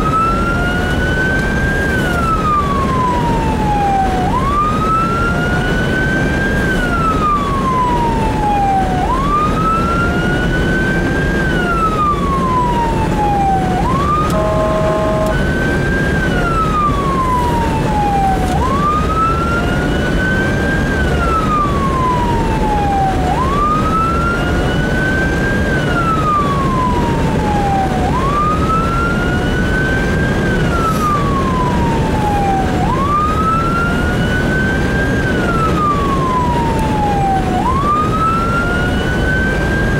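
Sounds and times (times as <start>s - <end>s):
engine and road noise: 0.0s - 39.9s
siren wailing: 0.0s - 39.9s
multi-tone horn blast: 14.2s - 15.6s.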